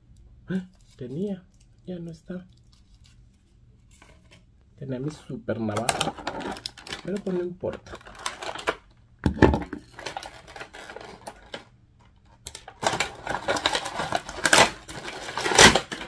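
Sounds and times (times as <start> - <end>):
plastic bag crinkling: 5.7 - 11.7, 12.4 - 16.0.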